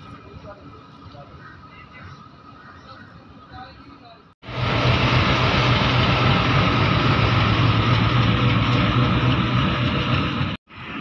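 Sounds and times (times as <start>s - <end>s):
diesel locomotive engine humming: 4.2s - 11.0s.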